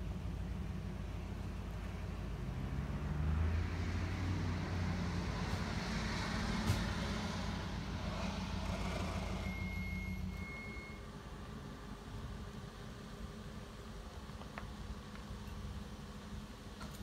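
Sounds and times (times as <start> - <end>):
thin steady high tone: 9.2 - 11.3.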